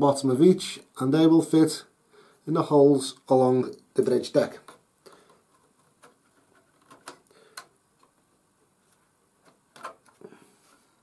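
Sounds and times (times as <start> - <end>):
wooden clicks and taps: 6.8 - 8.2.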